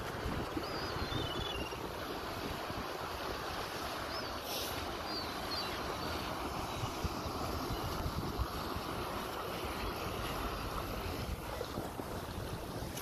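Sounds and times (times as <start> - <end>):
small waves on shore: 0.0 - 13.0
wind buffeting microphone: 0.0 - 13.0
faint high bird chirps: 0.6 - 1.8.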